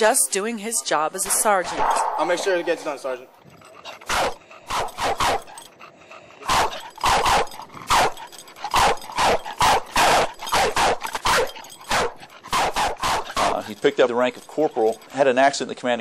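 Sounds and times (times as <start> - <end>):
dog barking: 6.5 - 13.8.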